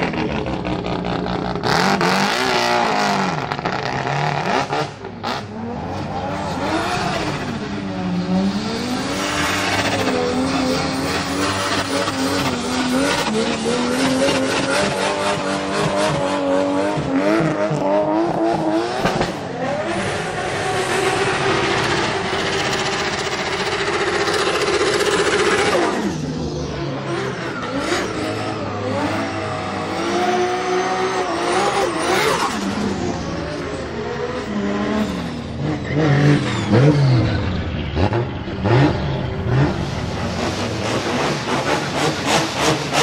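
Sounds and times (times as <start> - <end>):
car engine revving: 0.0 - 43.0.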